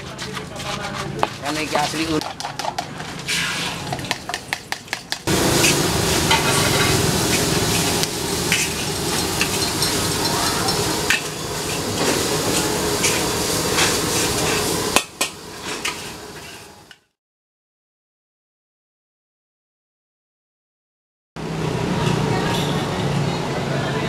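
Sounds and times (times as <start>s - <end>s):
rice sizzling in a wok: 1.4s - 17.1s
metal spatula scraping a pan: 3.0s - 4.0s, 5.6s - 11.9s, 15.6s - 16.8s.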